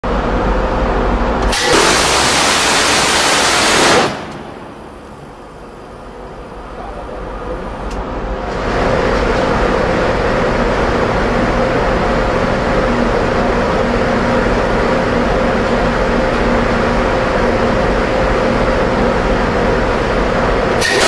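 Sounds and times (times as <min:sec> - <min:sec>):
steady mechanical hum: 0:00.0 - 0:21.0
gatling gun firing: 0:01.5 - 0:04.7.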